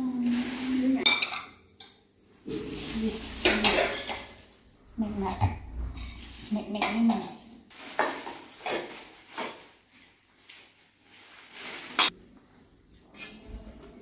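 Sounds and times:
dishes and steel containers clinking: 0:01.0 - 0:09.6, 0:11.8 - 0:12.2.

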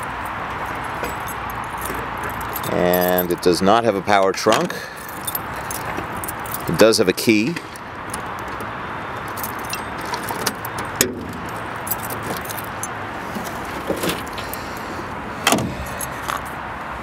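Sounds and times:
keys jangling: 0:00.2 - 0:03.5, 0:04.7 - 0:06.8, 0:09.2 - 0:14.9, 0:15.7 - 0:16.5
trunk lid clattering open: 0:08.1 - 0:12.6, 0:13.3 - 0:14.4, 0:15.4 - 0:16.0.

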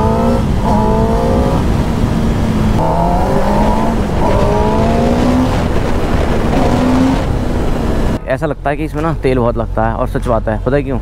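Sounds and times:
motorcycle engine accelerating hard: 0:00.0 - 0:08.2.

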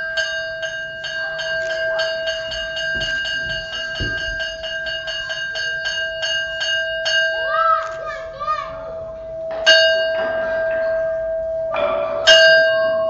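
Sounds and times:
metal bell struck rapidly: 0:00.0 - 0:07.7, 0:09.3 - 0:13.0
low thuds: 0:01.7 - 0:06.4.

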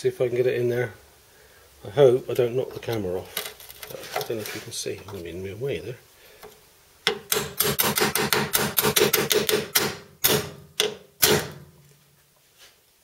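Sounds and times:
hard hammer blows ringing panel: 0:07.1 - 0:11.6.

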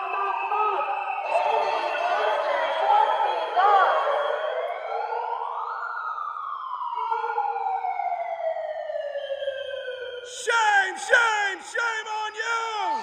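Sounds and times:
megaphone siren wail: 0:06.4 - 0:13.0.

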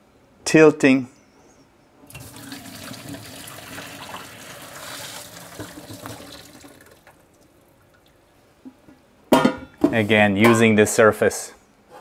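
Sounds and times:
water pouring into sink: 0:02.1 - 0:08.2.

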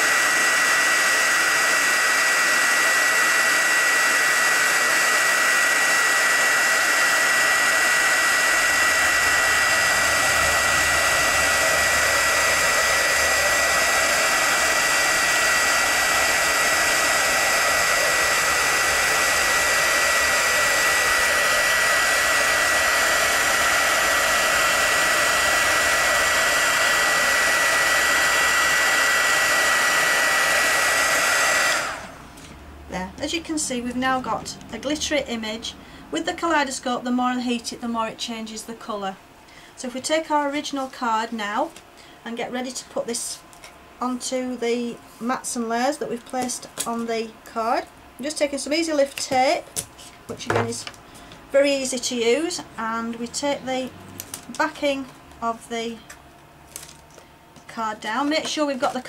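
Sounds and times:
heat gun whining: 0:00.0 - 0:32.6.

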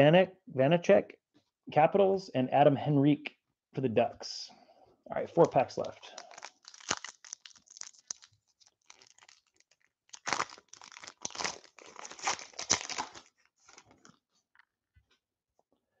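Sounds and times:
foil wrapper tearing and crinkling: 0:05.4 - 0:14.1.

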